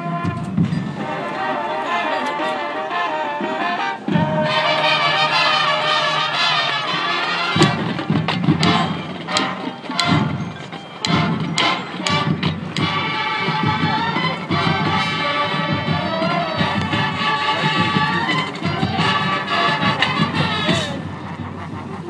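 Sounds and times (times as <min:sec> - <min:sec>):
heavy drum and percussion hits: 0:00.0 - 0:01.1, 0:07.5 - 0:21.6
marching band winds chords: 0:00.0 - 0:22.0.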